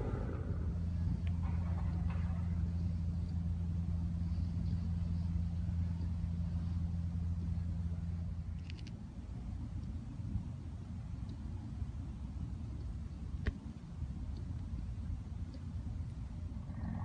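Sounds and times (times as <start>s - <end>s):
low engine drone: 0.0s - 17.0s
small clicks: 8.5s - 9.0s.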